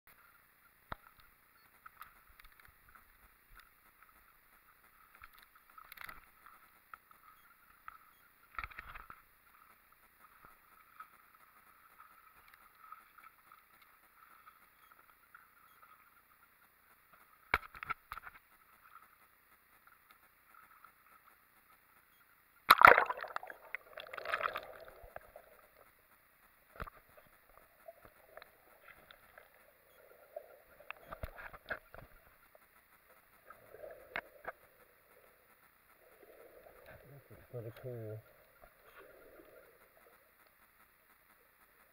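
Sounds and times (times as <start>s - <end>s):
faint steady hiss: 0.1s - 41.9s
water sloshing: 22.7s - 25.9s
water splashing: 22.7s - 40.4s.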